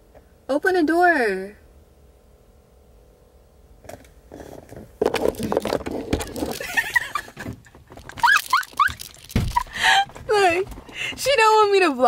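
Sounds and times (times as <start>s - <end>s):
faint steady hum: 0.0s - 12.0s
bag rustling and scraping: 4.3s - 11.0s.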